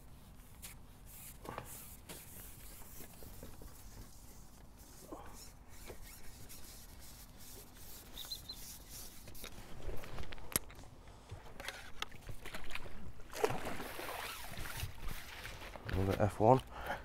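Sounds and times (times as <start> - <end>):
rubbing and rustling handling noise: 0.0 - 12.4.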